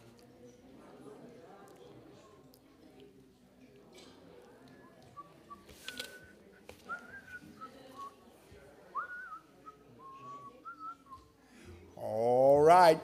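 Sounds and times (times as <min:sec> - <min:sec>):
person whistling a slow tune: 0:09.0 - 0:11.3.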